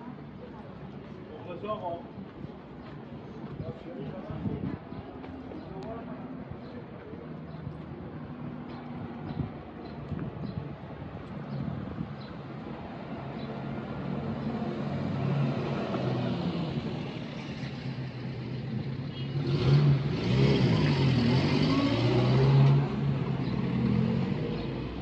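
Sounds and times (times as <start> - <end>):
low traffic noise: 0.0 - 25.0
vehicle engine passing by: 14.6 - 25.0.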